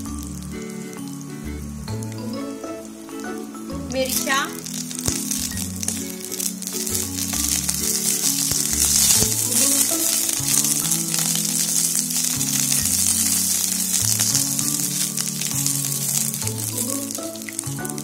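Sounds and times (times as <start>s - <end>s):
background music: 0.0s - 18.0s
food sizzling in hot oil: 0.0s - 18.0s
spatula stirring: 4.1s - 18.0s.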